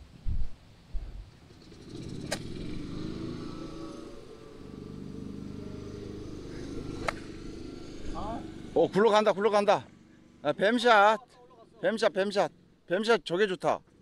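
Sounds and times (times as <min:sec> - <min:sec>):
small engine running: 0:01.4 - 0:10.9
golf club striking ball: 0:05.4 - 0:07.8.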